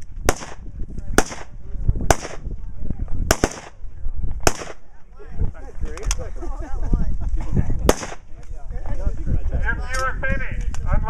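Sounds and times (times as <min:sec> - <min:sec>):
rifle shots with echo: 0:00.2 - 0:02.5, 0:03.3 - 0:03.8, 0:04.4 - 0:04.9, 0:07.9 - 0:08.4.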